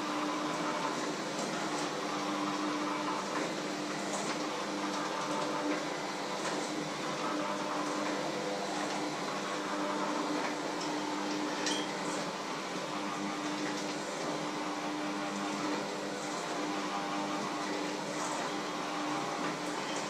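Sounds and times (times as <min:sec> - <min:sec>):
electric hand mixer whirring: 0:00.0 - 0:19.8.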